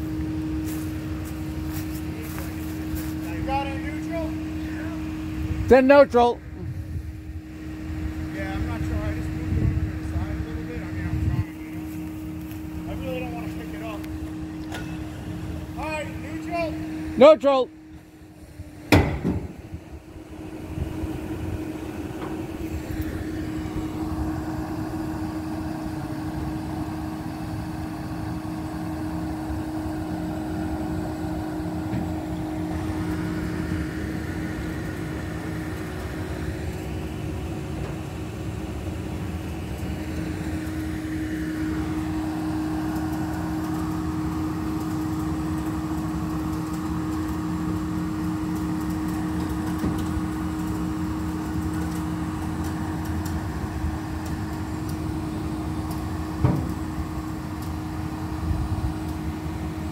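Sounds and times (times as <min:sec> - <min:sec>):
vehicle engine humming: 0:00.0 - 0:59.9
sharp knocks: 0:18.9 - 0:19.6.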